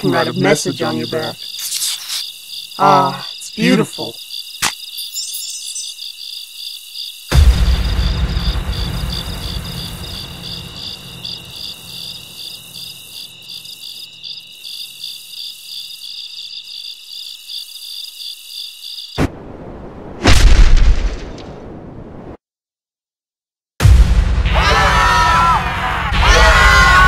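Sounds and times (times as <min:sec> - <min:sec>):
crickets chirping: 0:00.0 - 0:19.6
deep boom: 0:07.3 - 0:11.6, 0:23.8 - 0:25.0
loud explosion-like blast: 0:07.3 - 0:11.7, 0:19.2 - 0:21.9, 0:23.8 - 0:25.4.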